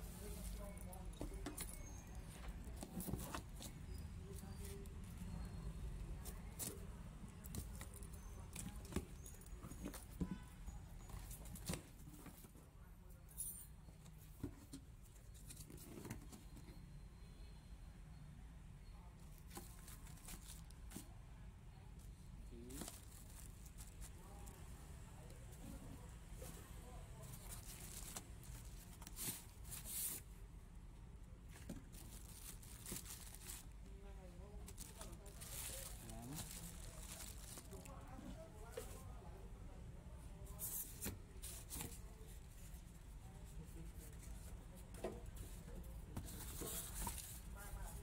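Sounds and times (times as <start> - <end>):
cardboard and paper rustling: 0.0 - 5.4, 19.4 - 21.1, 22.6 - 24.5, 26.4 - 30.4, 31.4 - 39.1, 40.5 - 48.0.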